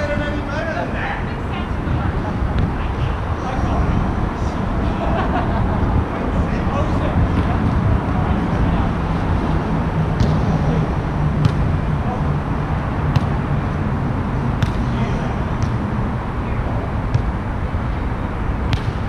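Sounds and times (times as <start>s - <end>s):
road traffic rumble: 0.0s - 19.0s
volleyball being hit: 10.1s - 10.5s, 11.4s - 11.8s, 13.1s - 13.5s, 14.5s - 15.0s, 15.6s - 15.9s, 17.1s - 17.4s, 18.7s - 19.0s.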